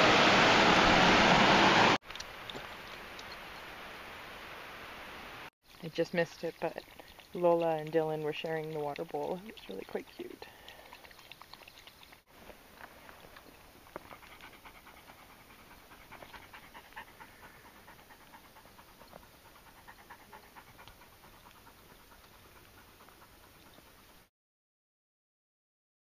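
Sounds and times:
dog lapping water: 0:05.7 - 0:12.3, 0:13.2 - 0:24.2
dog panting: 0:06.2 - 0:12.2, 0:13.2 - 0:24.3.

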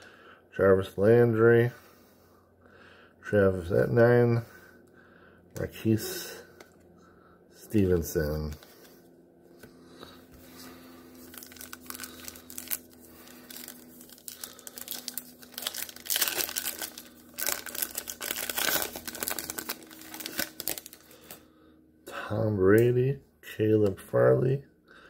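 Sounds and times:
foil wrapper tearing and crinkling: 0:11.2 - 0:21.4.

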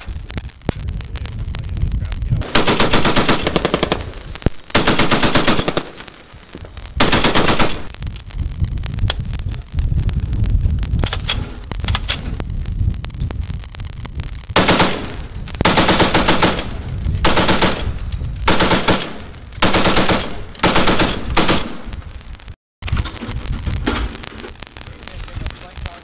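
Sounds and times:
low rumble: 0:00.0 - 0:04.5, 0:06.7 - 0:25.8
machine gun bursts: 0:02.4 - 0:06.1, 0:07.0 - 0:07.9, 0:14.6 - 0:21.9.

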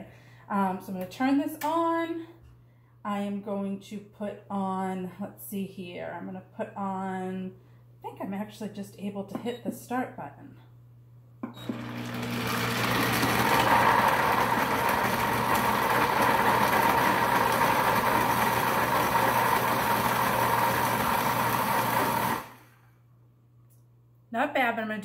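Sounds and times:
blender crushing ice: 0:11.6 - 0:22.8.

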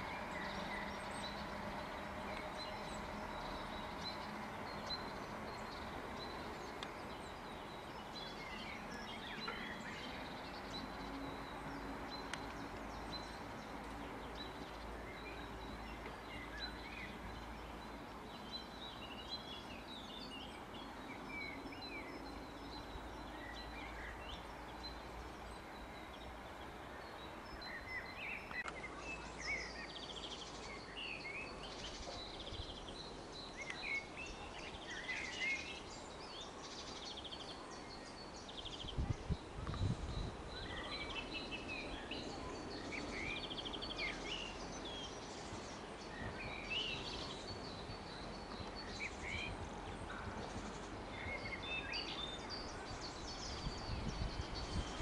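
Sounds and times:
faint outdoor hiss: 0:00.0 - 0:55.0
songbirds chirping and singing: 0:00.0 - 0:55.0.

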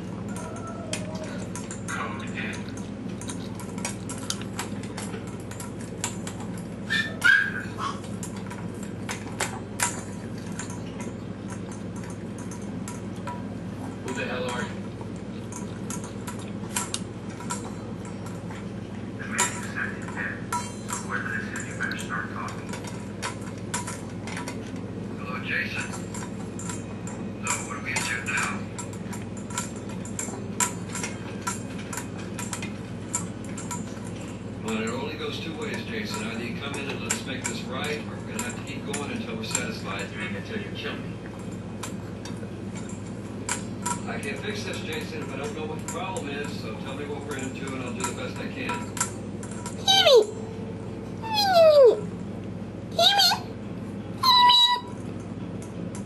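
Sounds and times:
dog yelp: 0:06.9 - 0:08.0, 0:49.8 - 0:50.3, 0:51.2 - 0:52.0, 0:53.0 - 0:53.5, 0:54.2 - 0:54.9.

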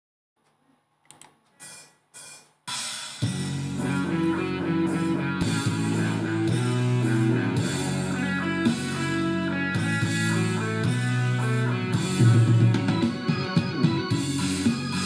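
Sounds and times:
bass and drums: 0:01.6 - 0:15.0
guitar: 0:03.2 - 0:15.0.

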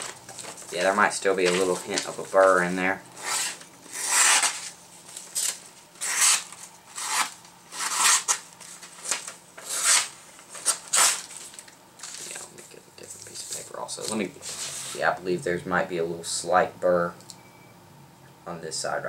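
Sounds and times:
knife slicing paper: 0:03.2 - 0:04.7, 0:06.0 - 0:08.4, 0:09.6 - 0:11.3.

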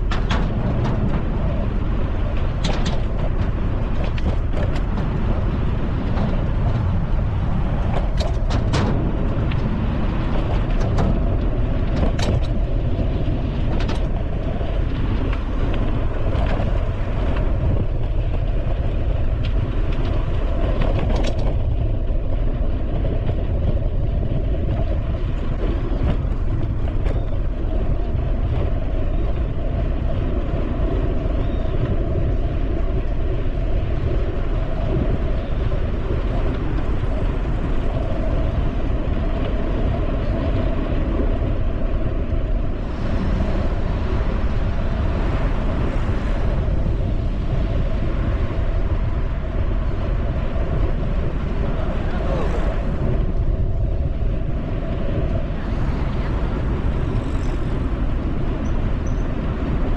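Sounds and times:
sharp clicks and rattles: 0:00.0 - 0:22.2
bicycle rolling on pavement: 0:00.0 - 0:59.9
rushing wind: 0:00.0 - 0:59.9.

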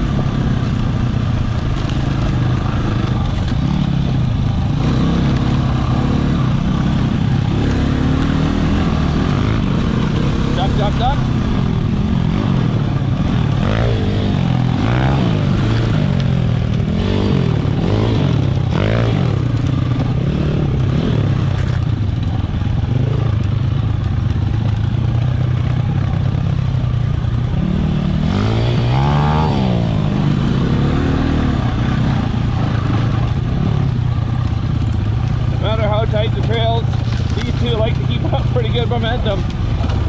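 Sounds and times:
dirt bike engine revving: 0:00.0 - 0:40.0.

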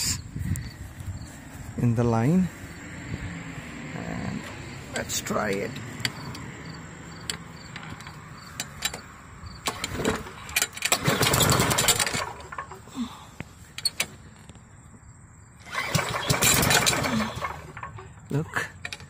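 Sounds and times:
mower engine turning over: 0:07.8 - 0:13.1, 0:15.6 - 0:19.0
lawn mower recoil cord pull: 0:09.6 - 0:12.9, 0:15.6 - 0:18.2.

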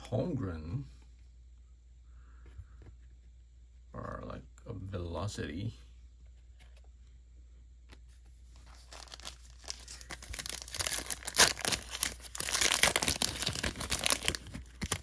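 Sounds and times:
foil wrapper crinkling and tearing: 0:08.7 - 0:15.0.

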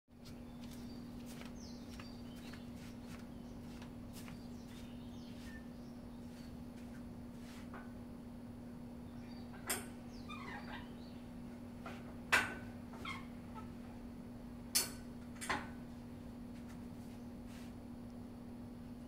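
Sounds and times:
steady low hum: 0:00.1 - 0:19.0
birds chirping: 0:00.2 - 0:07.1, 0:08.7 - 0:11.8.

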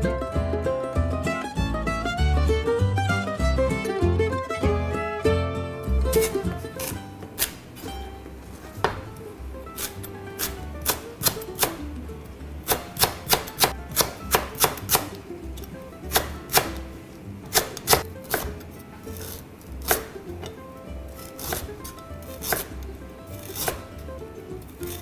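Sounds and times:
knife chopping on plastic board: 0:08.8 - 0:09.2, 0:12.6 - 0:15.2, 0:16.1 - 0:16.8, 0:17.5 - 0:18.6, 0:21.3 - 0:22.8, 0:23.4 - 0:23.9.

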